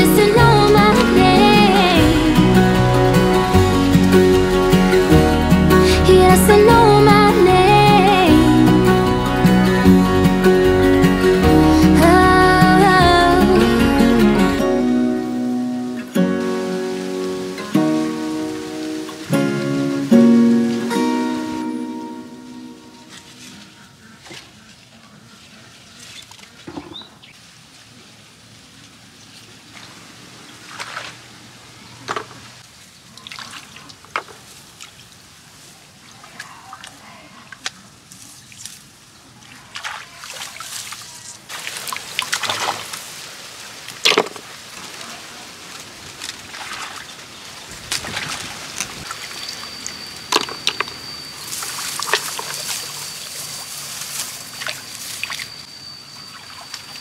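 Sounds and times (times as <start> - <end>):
muddy water sloshing: 0.0 - 22.0, 29.5 - 55.6
small splashes: 29.3 - 35.2, 36.0 - 49.6.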